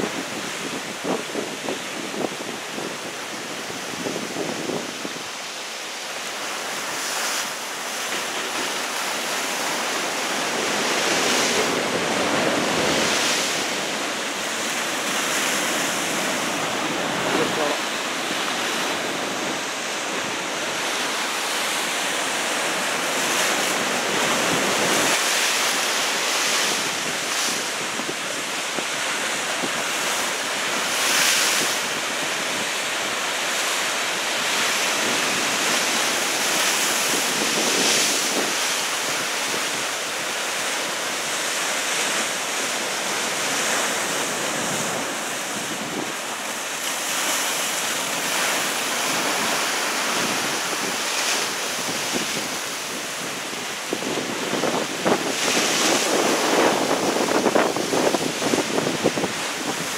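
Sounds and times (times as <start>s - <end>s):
heavy surf breaking over rocks: 0.0s - 59.9s
wind buffeting microphone: 47.2s - 59.9s.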